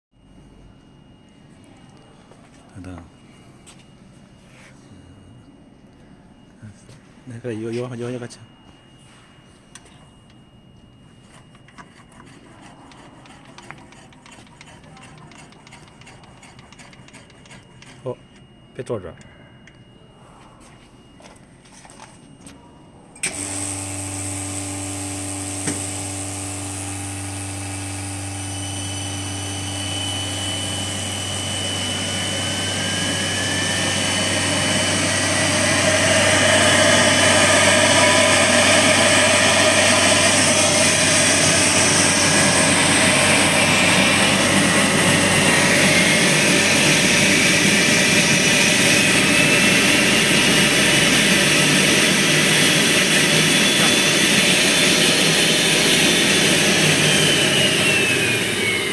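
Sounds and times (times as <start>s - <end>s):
machine hum: 0.2s - 58.9s
rotor whine rising in pitch: 23.2s - 58.9s.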